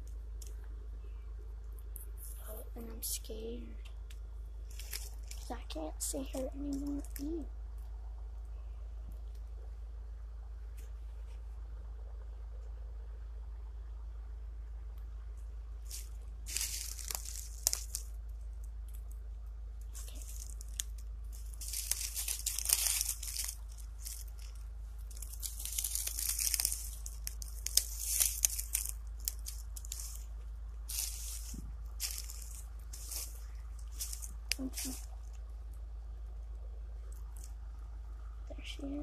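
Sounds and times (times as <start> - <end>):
dry leaves crackling and rustling: 4.6 - 7.5, 15.8 - 36.5, 37.1 - 37.8.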